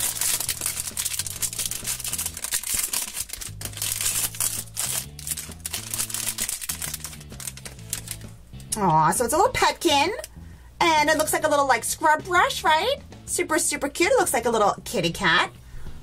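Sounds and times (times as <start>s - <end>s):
plastic wrapper crinkling: 0.0s - 8.4s
background music with bass line: 0.0s - 13.6s.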